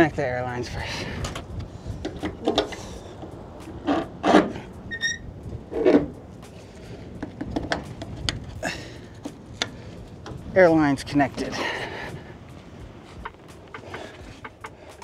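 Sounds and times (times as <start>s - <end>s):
high squeak: 4.9s - 5.3s.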